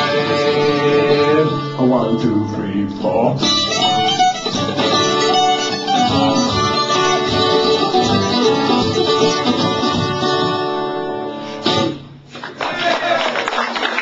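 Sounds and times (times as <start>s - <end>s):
harmonica melody: 0.0s - 12.0s
acoustic guitar strumming: 0.0s - 12.3s
small plucked string instrument: 3.4s - 11.2s.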